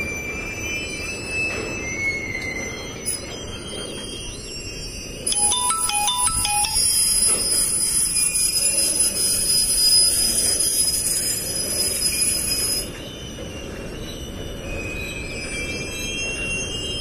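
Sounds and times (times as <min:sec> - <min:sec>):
electronic announcement chime: 0:05.0 - 0:07.6.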